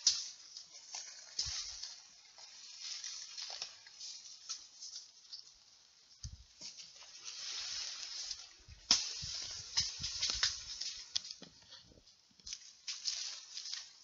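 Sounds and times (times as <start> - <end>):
twig clicks: 0.0 - 2.0, 8.2 - 11.6
leaves and branches rustling: 0.0 - 14.0
sharp crack: 8.8 - 11.4.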